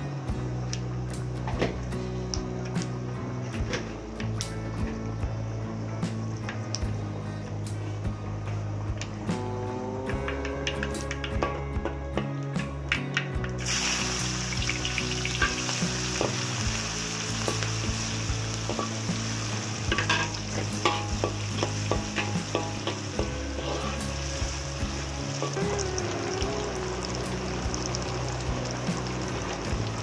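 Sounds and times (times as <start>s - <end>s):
onions sizzling in hot oil: 13.5s - 30.0s.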